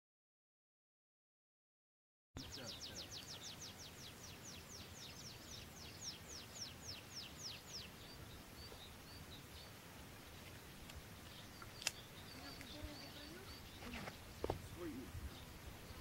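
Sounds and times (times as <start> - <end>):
small bird singing whistled notes: 2.4 - 9.7, 10.8 - 14.5.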